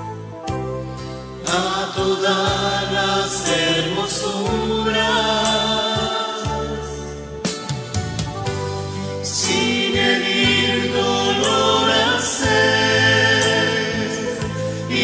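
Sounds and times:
choir singing a hymn: 0:01.4 - 0:07.2, 0:09.2 - 0:15.0.

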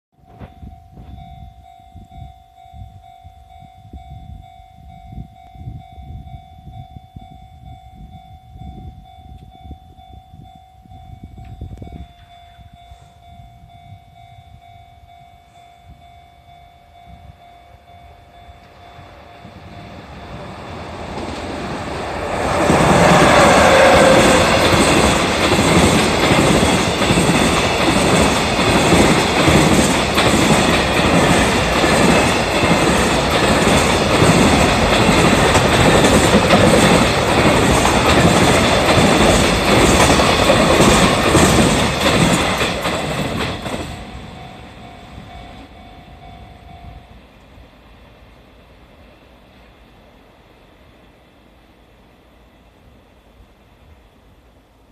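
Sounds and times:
crossing warning alarm ringing: 0:00.2 - 0:48.3
train rumble: 0:00.2 - 0:54.9
wheels clickety-clack over rail joints: 0:18.6 - 0:46.4.

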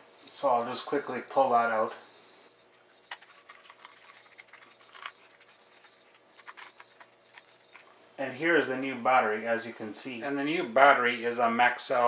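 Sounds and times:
packaging clicks and crinkles: 0:03.0 - 0:08.0.

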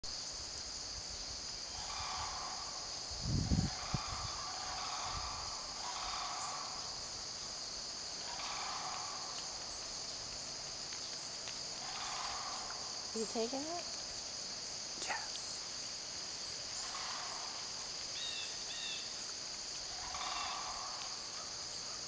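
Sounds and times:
crickets and insects chorus: 0:00.1 - 0:22.0
distant crane calls: 0:01.7 - 0:03.0, 0:03.6 - 0:07.2, 0:08.2 - 0:09.9, 0:11.7 - 0:13.8, 0:16.7 - 0:19.2, 0:19.8 - 0:22.0.

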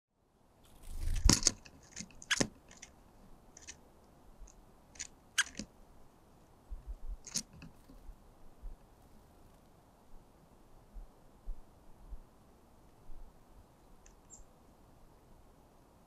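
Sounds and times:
woodpecker pecking on wood: 0:01.1 - 0:03.0, 0:03.6 - 0:03.8, 0:04.4 - 0:05.7.

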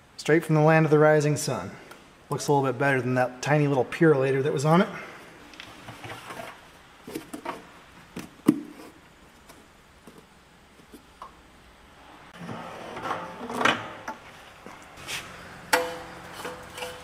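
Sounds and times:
plastic jug rustling and scraping: 0:05.6 - 0:11.1, 0:15.0 - 0:15.4, 0:16.2 - 0:17.0.

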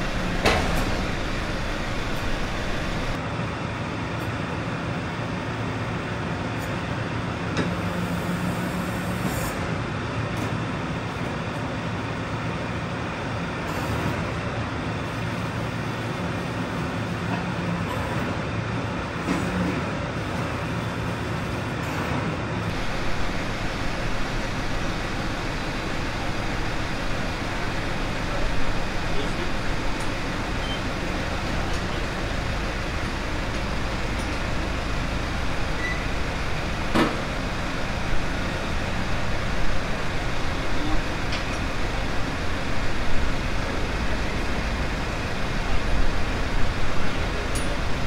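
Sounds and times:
tractor diesel engine idling: 0:00.0 - 0:04.1, 0:22.6 - 0:48.0.

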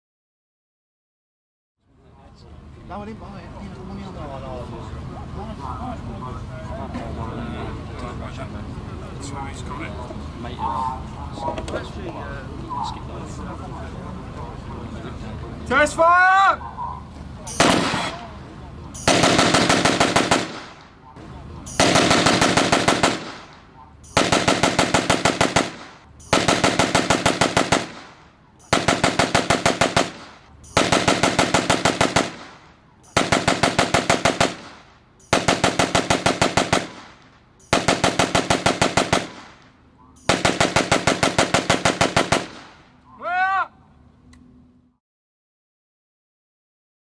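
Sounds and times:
machine gun bursts: 0:17.5 - 0:18.2, 0:19.0 - 0:20.8, 0:21.7 - 0:39.6, 0:40.2 - 0:42.8.

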